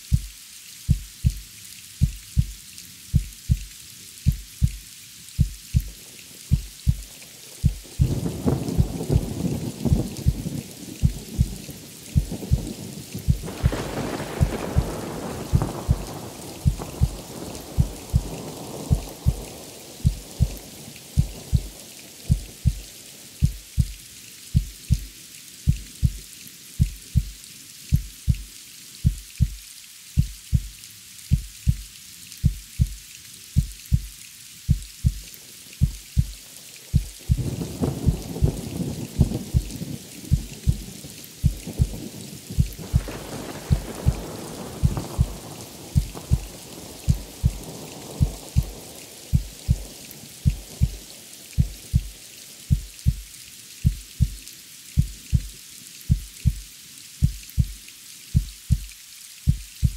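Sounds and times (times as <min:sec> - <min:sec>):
steady rain: 0:00.0 - 0:59.9
heartbeat thumps: 0:00.1 - 0:00.3, 0:00.9 - 0:01.4, 0:02.0 - 0:04.8, 0:05.4 - 0:11.6, 0:12.2 - 0:12.7, 0:13.3 - 0:20.6, 0:21.2 - 0:24.0, 0:24.6 - 0:25.1, 0:25.7 - 0:26.2, 0:26.8 - 0:29.6, 0:30.2 - 0:33.0, 0:33.6 - 0:34.1, 0:34.7 - 0:35.2, 0:35.8 - 0:42.0, 0:42.6 - 0:45.4, 0:46.0 - 0:51.0, 0:51.6 - 0:54.4, 0:55.0 - 0:57.8, 0:58.4 - 0:58.9, 0:59.5 - 0:59.9
rolls of thunder: 0:12.2 - 0:19.4, 0:42.6 - 0:47.6.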